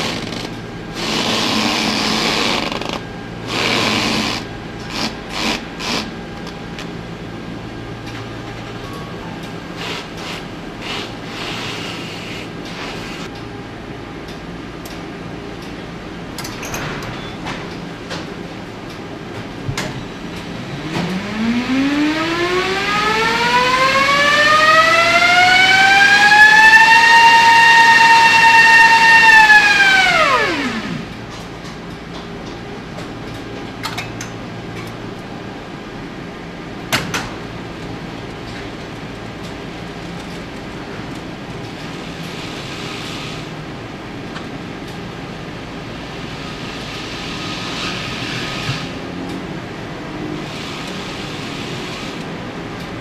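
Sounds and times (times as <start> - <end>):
low factory hum: 0.0 - 53.0
electric motor whine rising: 20.8 - 31.2.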